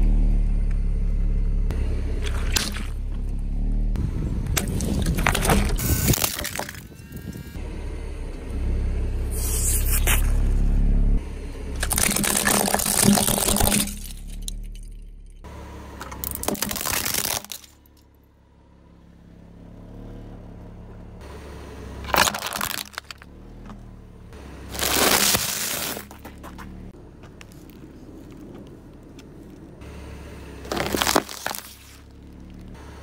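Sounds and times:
low rumble: 0.0s - 16.6s
plastic toys cracking and crunching: 11.8s - 14.6s, 16.2s - 17.8s, 22.1s - 23.3s, 24.7s - 26.6s, 30.7s - 32.6s.

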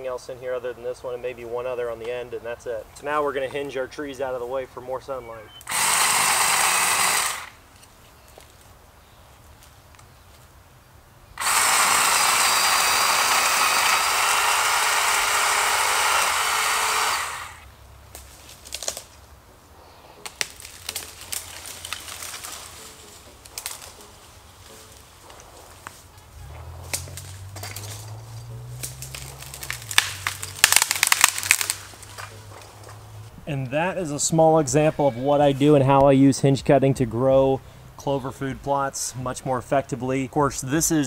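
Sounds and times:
chainsaw cutting tree trunk: 5.6s - 7.6s, 11.4s - 17.7s, 25.3s - 33.0s
tree cracking and snapping: 5.6s - 7.6s, 11.4s - 19.2s, 20.2s - 33.2s.

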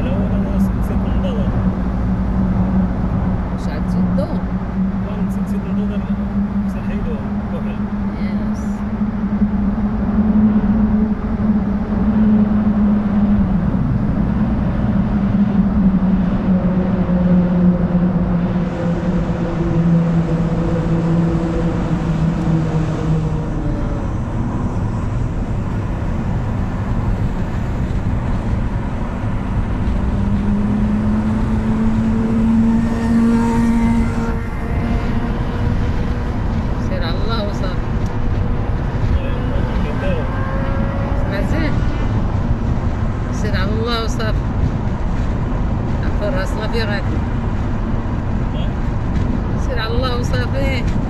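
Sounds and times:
car road noise rumble: 0.0s - 51.0s
low engine hum: 0.0s - 51.0s.

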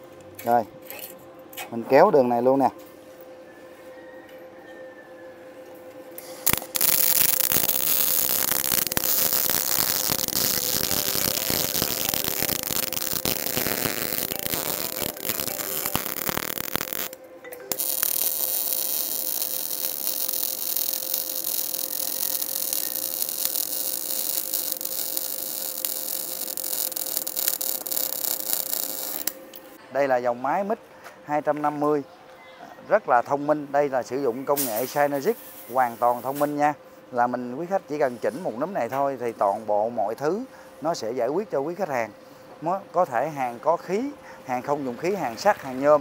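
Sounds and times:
welding arc crackling sizzle: 6.3s - 29.8s, 34.5s - 36.6s.

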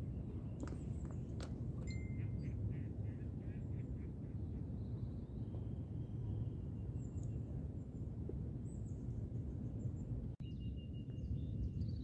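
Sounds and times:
songbird chirps: 0.0s - 2.6s.

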